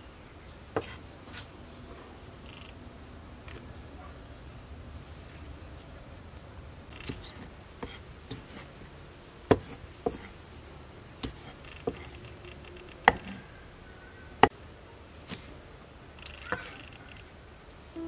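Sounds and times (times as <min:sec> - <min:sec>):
knife striking cutting board: 0:09.5 - 0:10.3, 0:11.2 - 0:12.2, 0:13.1 - 0:13.4.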